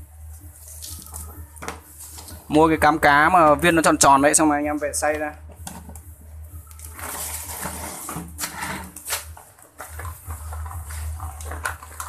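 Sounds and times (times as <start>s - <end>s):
low steady hum: 0.0s - 12.0s
hand stirring dry bait mix: 6.6s - 12.0s.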